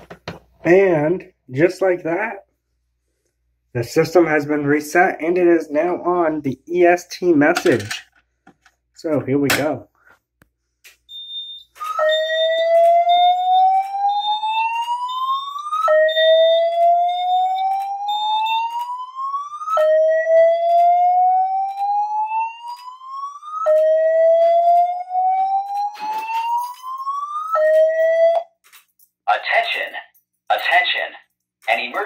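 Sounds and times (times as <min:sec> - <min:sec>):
fire alarm slow whoop: 0:11.1 - 0:28.5.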